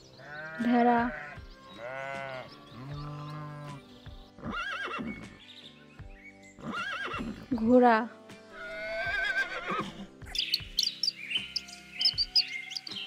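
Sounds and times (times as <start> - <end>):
background music: 0.0 - 13.0
sheep bleating: 0.2 - 3.8
horse whinny: 4.4 - 5.2, 6.6 - 7.4, 8.6 - 10.1.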